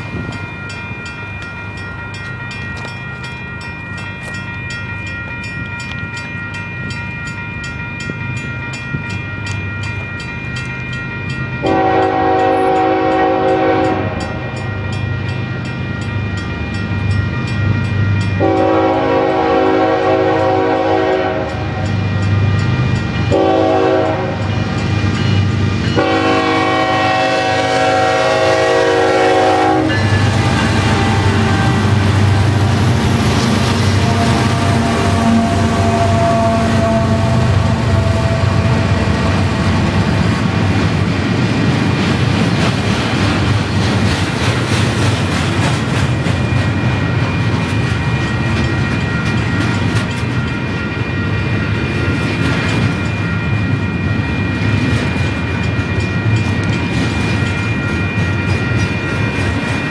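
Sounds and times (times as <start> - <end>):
level-crossing bell ringing: 0.0 - 38.1, 45.6 - 59.9
train air horn: 11.6 - 14.4, 18.4 - 21.7, 23.3 - 24.5, 26.0 - 32.8, 33.7 - 39.7
diesel engine and wheels rumble: 14.8 - 59.9.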